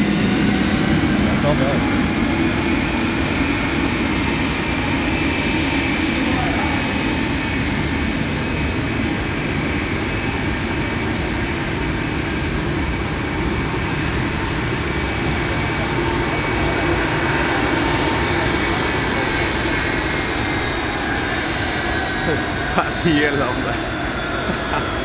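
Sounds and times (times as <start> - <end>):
high jet whine: 0.0 - 25.0
jet engines rumbling: 0.0 - 25.0.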